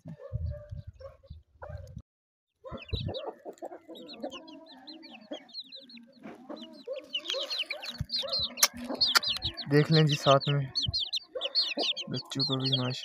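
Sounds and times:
chicks peeping: 0.0s - 2.0s, 2.6s - 13.0s.

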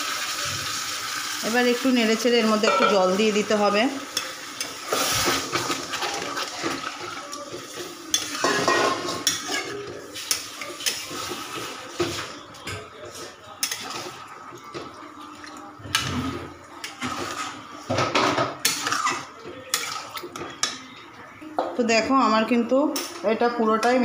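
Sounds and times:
metal spatula scraping metal pot: 8.1s - 11.6s.

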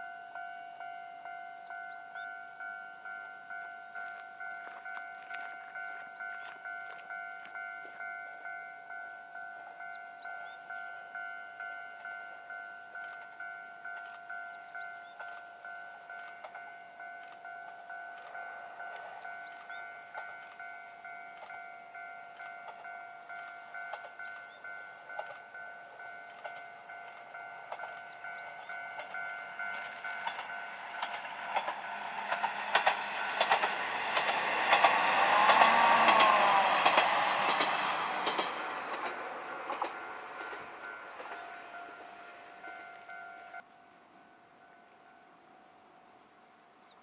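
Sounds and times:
diesel railcar passing: 0.0s - 47.0s
wheels clicking over rail joints: 13.0s - 43.6s.

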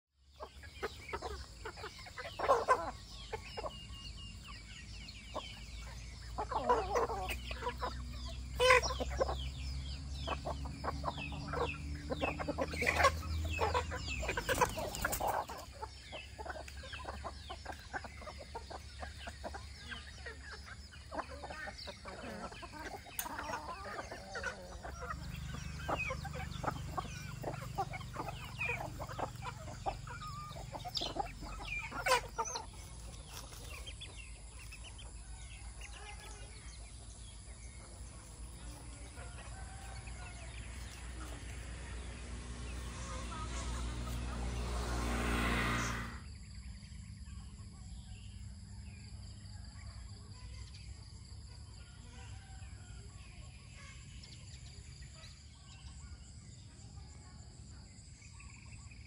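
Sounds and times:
chickens clucking: 0.2s - 59.0s
low hum with rising pitch: 40.3s - 47.2s.

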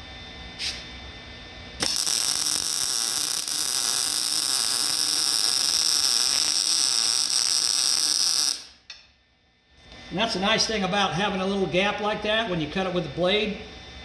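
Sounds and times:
welding arc hissing: 1.8s - 8.9s.

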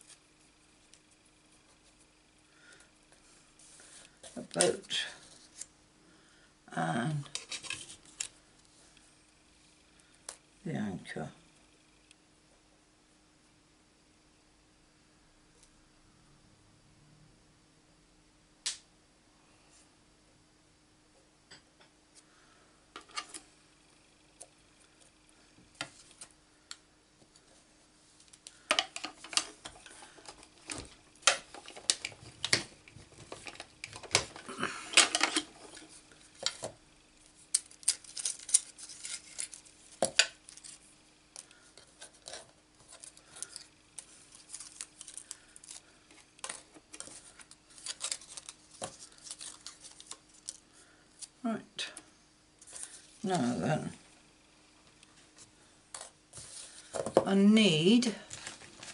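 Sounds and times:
plastic and metal plates clattering: 28.7s - 35.8s.

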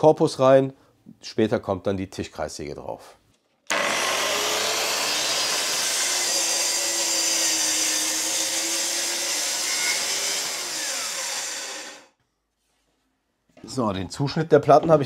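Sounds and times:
track saw cutting: 3.7s - 12.1s.

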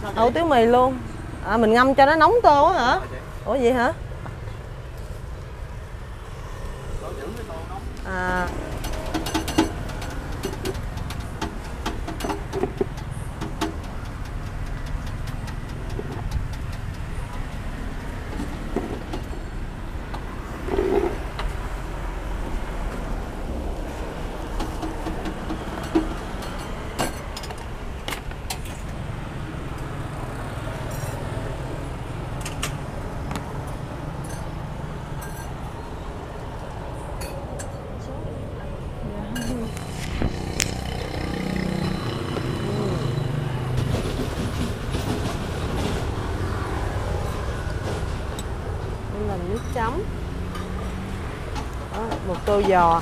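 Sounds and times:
low rumble of street traffic: 0.0s - 53.0s.

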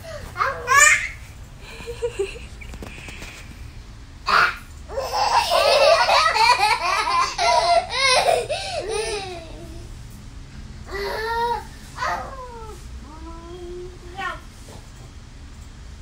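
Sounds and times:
girl laughing: 1.6s - 2.9s, 5.2s - 9.6s
baby laughing: 4.9s - 9.6s.

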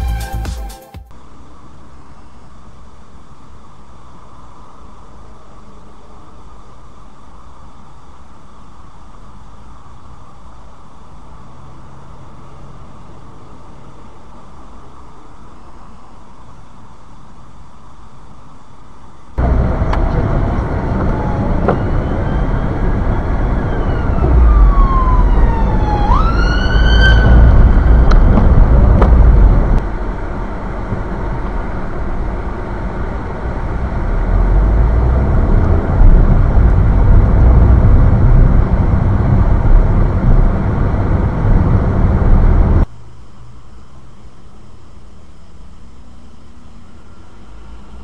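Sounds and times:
emergency siren: 19.4s - 29.8s
car rumbling on wet road: 19.4s - 42.8s.

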